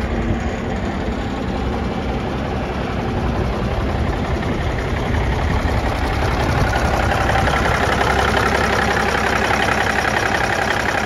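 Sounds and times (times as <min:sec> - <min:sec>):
truck diesel engine idling: 0:00.0 - 0:11.0.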